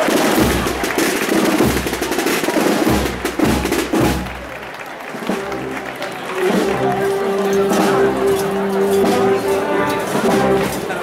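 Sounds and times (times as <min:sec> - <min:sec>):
snare drum roll: 0:00.0 - 0:11.0.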